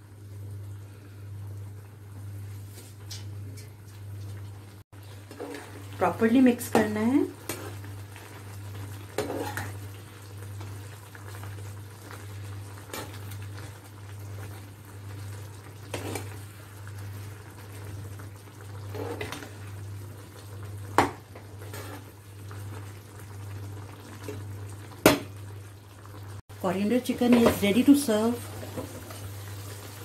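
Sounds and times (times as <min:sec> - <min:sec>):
curry bubbling in a pan: 0:04.0 - 0:26.4
metal spatula scraping a pan: 0:09.2 - 0:09.8, 0:21.6 - 0:22.1.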